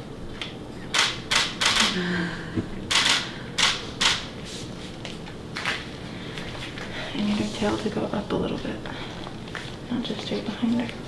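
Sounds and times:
camera shutter clicks: 0.9 - 2.0, 2.9 - 4.2.

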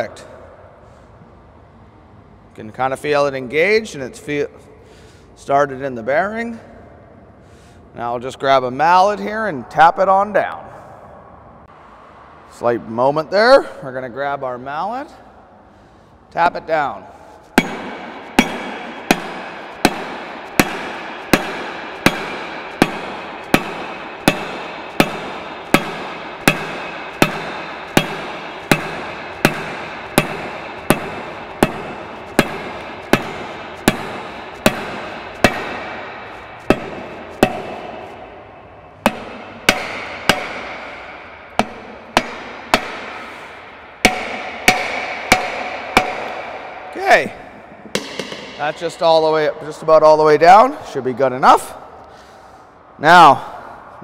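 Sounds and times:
mallet striking metal shaft: 17.6 - 49.4.

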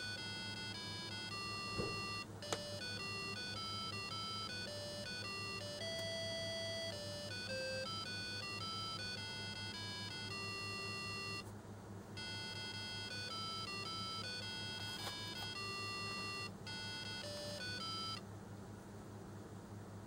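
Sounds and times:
electronic beeping melody: 0.0 - 11.4, 12.2 - 18.2.

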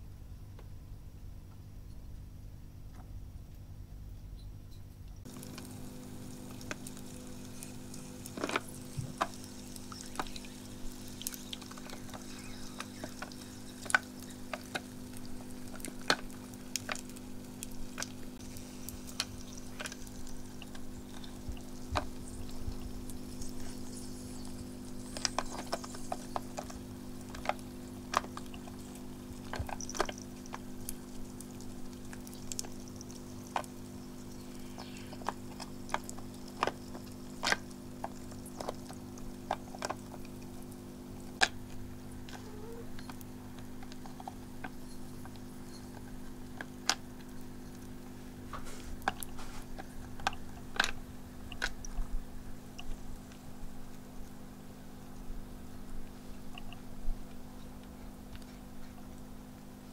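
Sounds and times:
fountain pump humming: 5.2 - 58.3
water trickling: 5.3 - 53.2.

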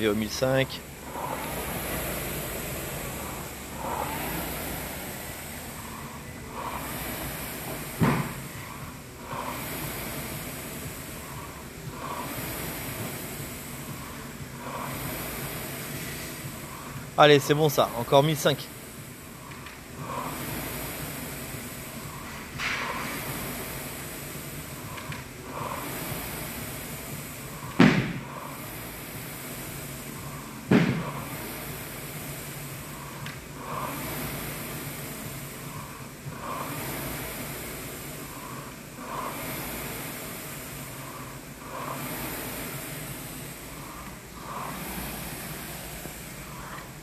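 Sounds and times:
rowing machine flywheel whooshing: 0.0 - 47.0
loud sharp thump: 8.0 - 8.4, 27.8 - 28.3, 30.7 - 31.1
sharp thump: 27.8 - 28.2.

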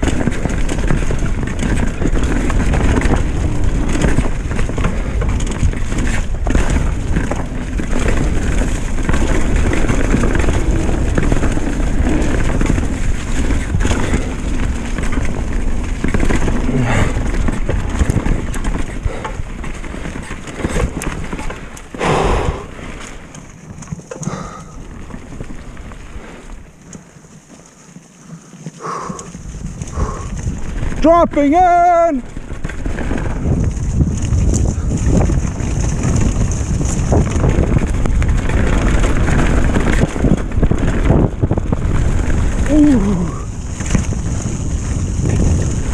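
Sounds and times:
bike knocking and clattering: 0.0 - 45.9
bike tyres rolling over leaves: 0.0 - 45.9
wind buffeting microphone: 28.8 - 45.9.

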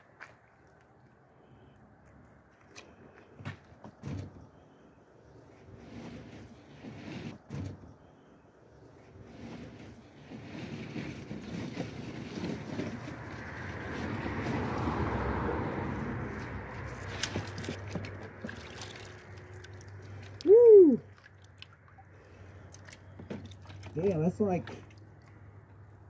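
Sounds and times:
water sloshing and gurgling: 2.6 - 26.0
vocal exclamation: 20.4 - 21.1.

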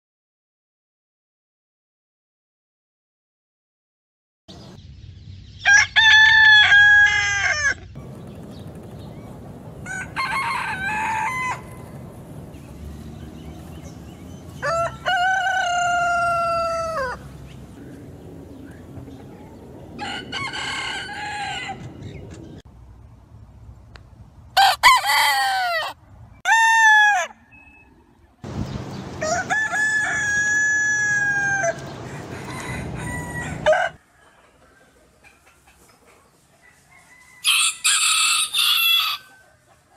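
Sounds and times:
roosters crowing: 5.6 - 18.0, 19.4 - 22.4, 24.6 - 27.7, 28.9 - 35.0, 36.6 - 39.9.

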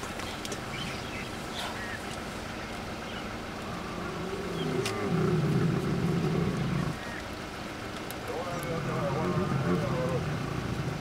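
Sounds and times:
lion growling: 3.6 - 7.0, 8.3 - 11.0.

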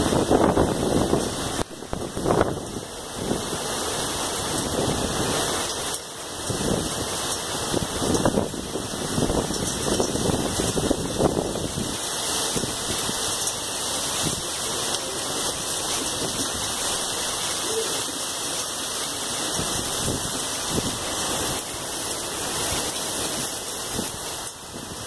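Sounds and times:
wind buffeting microphone: 0.0 - 3.6, 6.4 - 13.5, 19.5 - 21.7
heavy rain pouring: 0.0 - 25.0.

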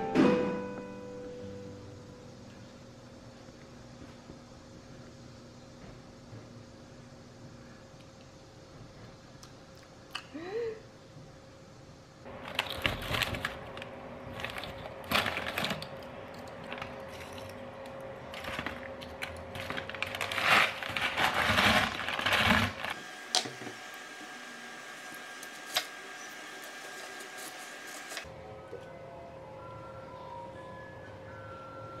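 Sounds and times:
corn chips rustling and crunching: 12.3 - 23.0
foil snack bag crinkling: 12.3 - 23.0.

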